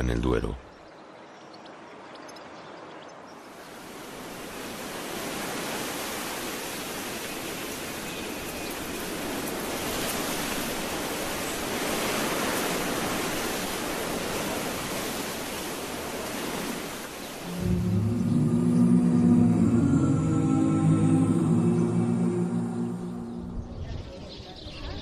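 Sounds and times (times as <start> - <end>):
wind blowing through grass: 3.2 - 18.6.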